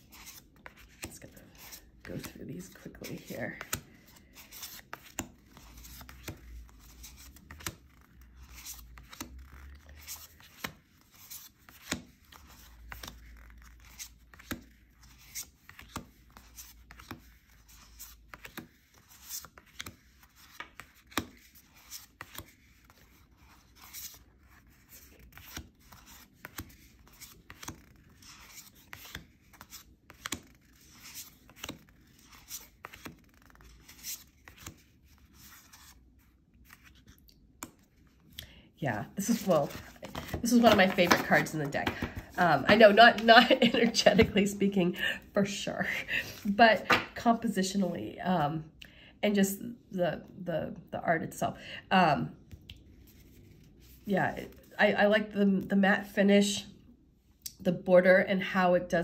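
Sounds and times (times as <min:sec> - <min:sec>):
cards dealt onto a table: 0:39.3 - 0:43.3.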